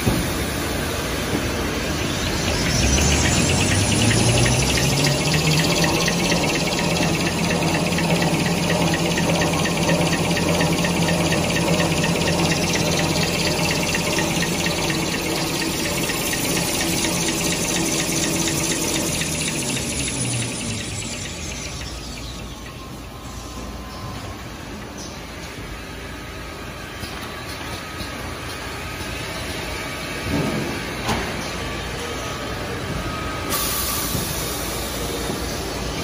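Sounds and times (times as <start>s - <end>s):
low machine hum: 0.0s - 33.5s
rollers whirring: 0.0s - 36.0s
fast even ticking: 2.4s - 22.2s.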